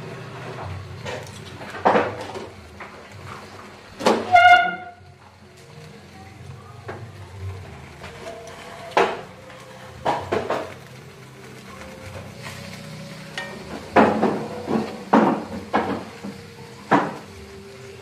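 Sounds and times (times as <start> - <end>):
metal tongs clanking on wok: 12.1 - 17.4.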